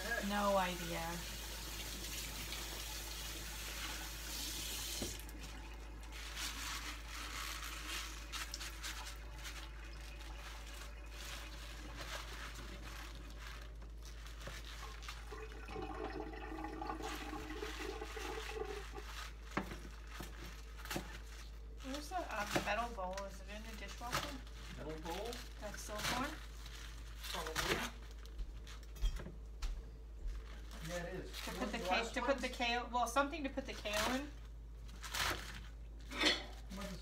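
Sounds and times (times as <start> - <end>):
tap water running: 0.0 - 23.4
leaves rustling: 0.0 - 29.0, 30.4 - 37.0.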